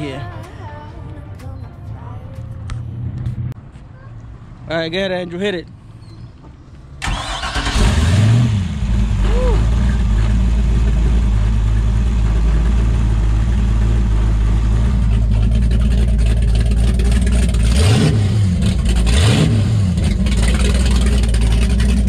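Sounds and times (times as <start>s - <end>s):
boat engine idling and revving: 7.0s - 22.0s.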